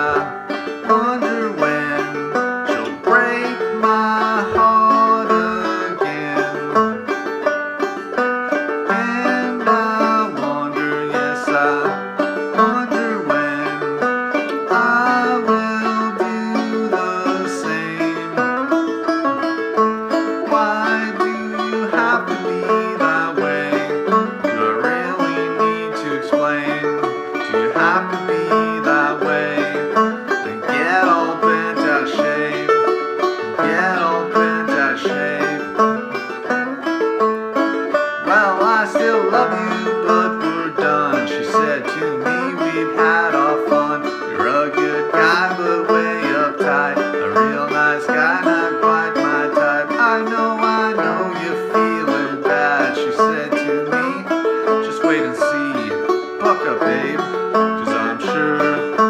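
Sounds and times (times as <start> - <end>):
banjo plucking and strumming: 0.0 - 59.0.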